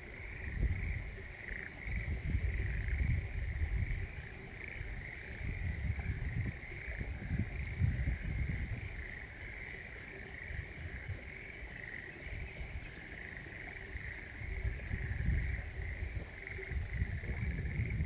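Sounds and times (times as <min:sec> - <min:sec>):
frogs trilling: 0:00.0 - 0:18.0
low gusty rumble: 0:14.4 - 0:18.0.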